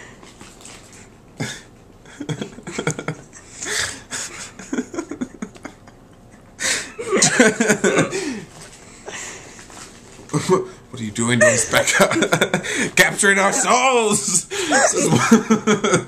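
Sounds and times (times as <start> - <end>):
people laughing: 4.1 - 6.0, 6.6 - 8.4, 11.4 - 16.0.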